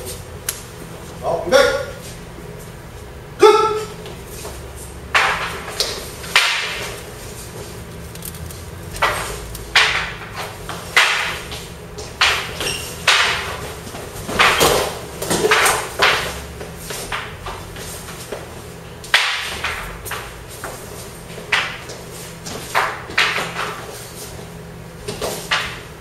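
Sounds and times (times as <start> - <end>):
wooden shafts clacking together: 8.2 - 16.5.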